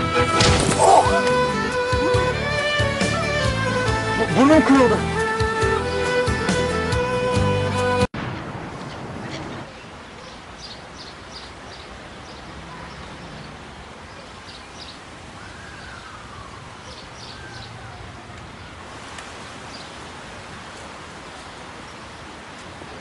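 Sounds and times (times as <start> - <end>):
small birds chirping: 8.7 - 20.2
background hiss: 9.7 - 23.0.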